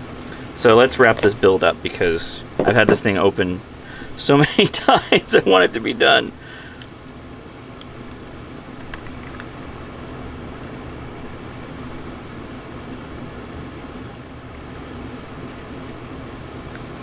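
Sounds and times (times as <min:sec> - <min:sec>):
low hum: 0:00.0 - 0:17.0
steady hiss: 0:00.0 - 0:17.0
faint clicks of radio parts: 0:06.3 - 0:07.2, 0:07.8 - 0:09.7.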